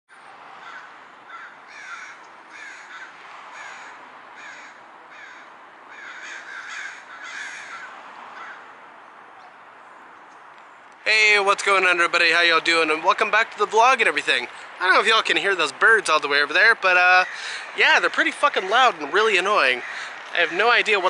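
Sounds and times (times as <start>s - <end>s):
crows cawing: 0.6s - 8.8s, 17.0s - 21.0s.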